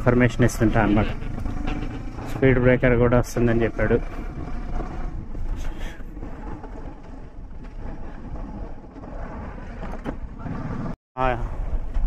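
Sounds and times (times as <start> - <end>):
motorcycle engine running: 0.0 - 7.6.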